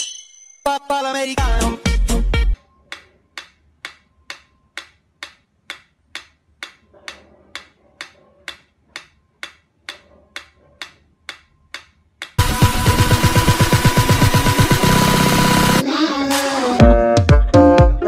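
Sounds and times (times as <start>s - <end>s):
metronome ticking: 2.9s - 6.8s, 7.6s - 12.4s.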